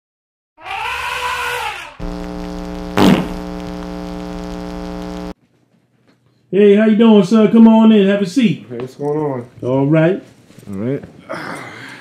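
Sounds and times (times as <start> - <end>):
rising and falling electronic tone: 2.0 - 5.4
steady buzzing tone: 2.0 - 5.4
loud sharp hit: 3.0 - 3.4.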